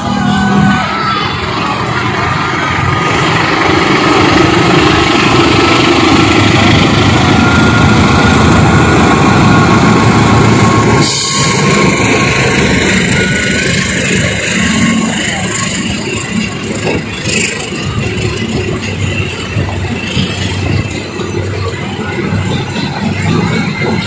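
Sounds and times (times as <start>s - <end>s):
locomotive engine running: 0.0s - 24.0s
train wheels rolling on rails: 0.0s - 24.0s.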